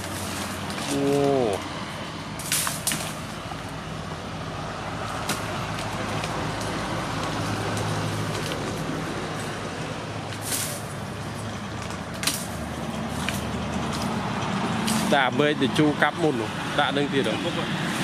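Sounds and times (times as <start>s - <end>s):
low engine hum: 0.0s - 18.0s
blade striking tree branches: 2.4s - 3.4s, 5.1s - 6.8s, 11.8s - 14.2s.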